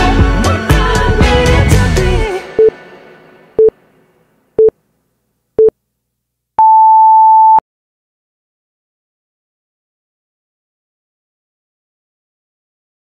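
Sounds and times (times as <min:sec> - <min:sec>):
background music: 0:00.0 - 0:04.7.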